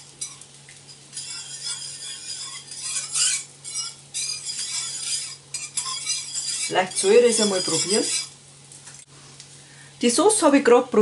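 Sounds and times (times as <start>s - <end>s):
spoon scraping frying pan: 0.0s - 8.4s.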